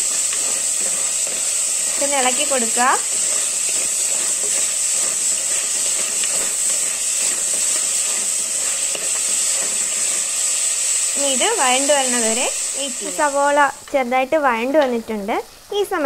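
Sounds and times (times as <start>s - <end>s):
spatula scraping a pot: 0.0s - 11.0s
vegetables sizzling in hot oil: 0.0s - 16.0s.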